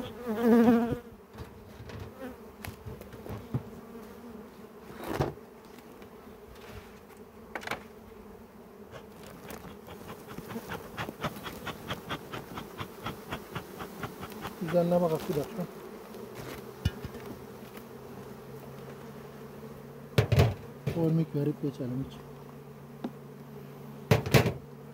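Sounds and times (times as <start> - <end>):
honeybees buzzing: 0.0 - 24.9
sharp knocks: 20.2 - 21.0, 24.1 - 24.6.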